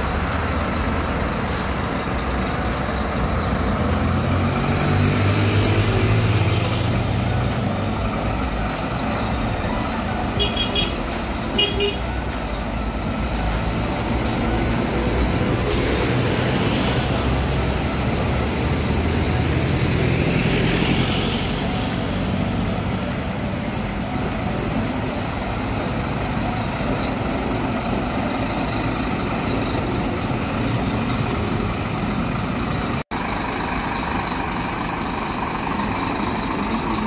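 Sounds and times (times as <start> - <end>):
bus diesel engine humming: 0.0 - 37.0.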